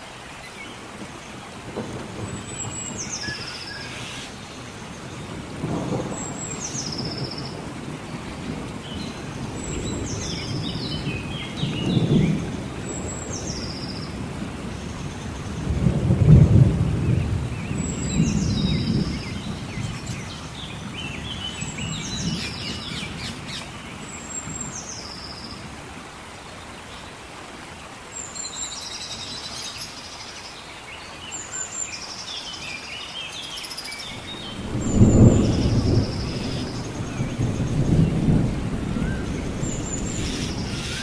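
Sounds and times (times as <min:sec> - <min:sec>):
rain falling: 0:00.0 - 0:41.0
thunder rumbling: 0:01.6 - 0:03.5, 0:04.6 - 0:23.6, 0:34.1 - 0:41.0
bird high call: 0:40.0 - 0:41.0.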